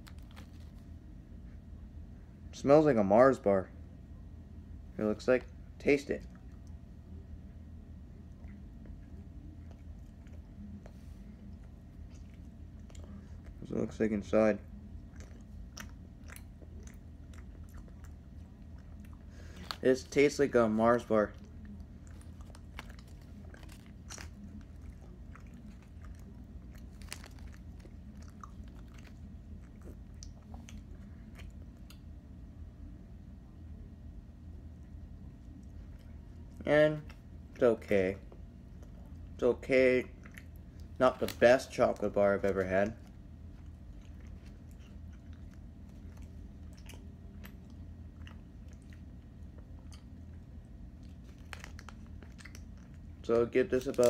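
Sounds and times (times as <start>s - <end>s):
chewing: 0.0s - 1.0s, 8.2s - 13.6s, 14.6s - 32.1s, 38.3s - 39.4s, 40.1s - 54.0s
low steady hum: 0.0s - 54.0s.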